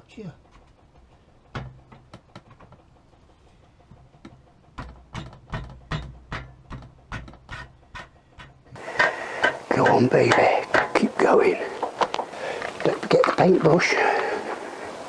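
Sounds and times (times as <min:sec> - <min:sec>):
dull knocks on metal bolt: 0:01.5 - 0:02.6, 0:04.2 - 0:07.8.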